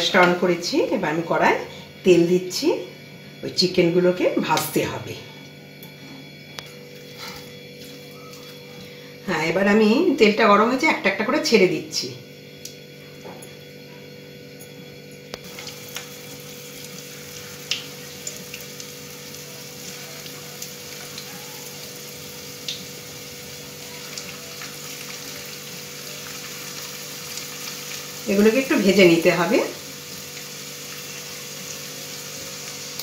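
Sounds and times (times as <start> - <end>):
chicken sizzling in hot oil: 15.4 - 33.0.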